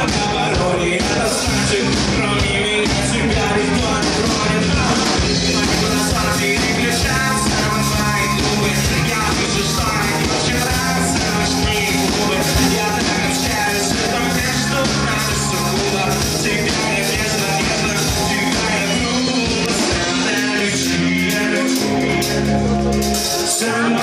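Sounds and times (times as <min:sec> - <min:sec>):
man singing into microphone: 0:00.0 - 0:22.6, 0:23.3 - 0:24.0
live rock band playing: 0:00.0 - 0:24.0.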